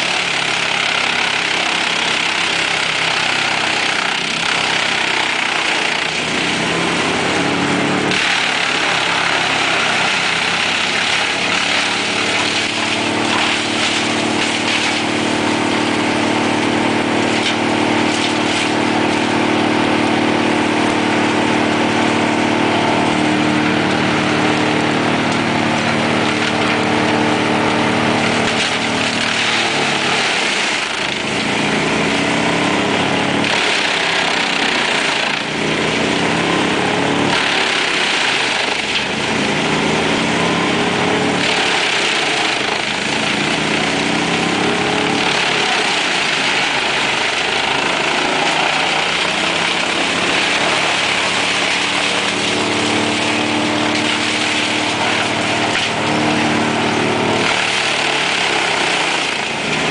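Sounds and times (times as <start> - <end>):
wood splintering cracks: 0.0 - 20.0, 25.3 - 39.7, 40.6 - 59.9
wood chipper engine drone: 0.0 - 59.9
wood crushing and chipping: 0.0 - 59.9.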